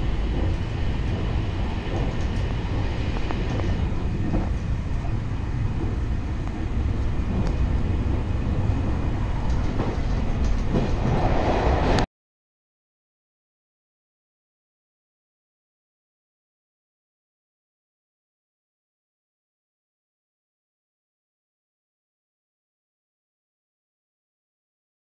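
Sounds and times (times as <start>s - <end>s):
train running on rails: 0.0s - 12.1s.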